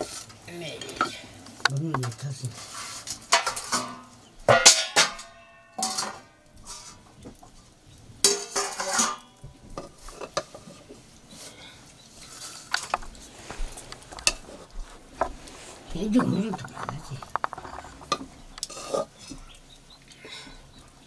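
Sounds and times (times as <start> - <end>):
metal dishes clinking: 3.2 - 7.0, 8.2 - 10.9, 16.2 - 19.6.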